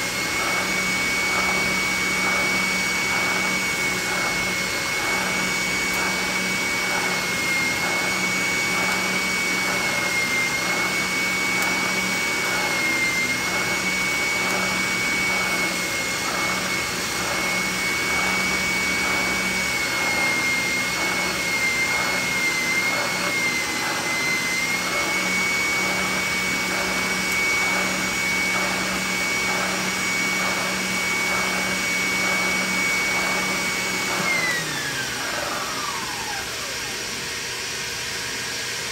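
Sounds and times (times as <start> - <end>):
spindle sander whine: 0.0 - 38.9.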